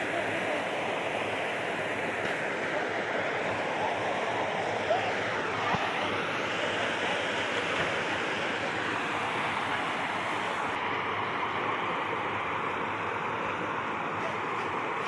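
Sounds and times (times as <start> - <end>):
creek water rushing: 0.0 - 15.0.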